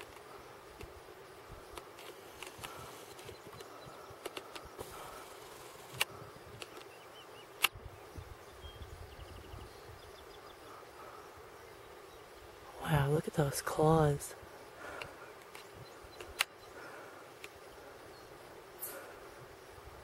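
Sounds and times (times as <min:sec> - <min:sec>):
steady low hum: 0:00.0 - 0:20.0
sharp clicks: 0:01.7 - 0:07.0, 0:15.0 - 0:16.6.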